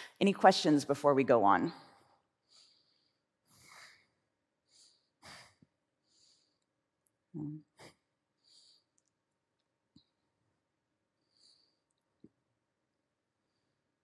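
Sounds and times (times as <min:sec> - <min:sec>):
person breathing: 0:02.0 - 0:06.8, 0:07.7 - 0:09.0, 0:11.1 - 0:12.0.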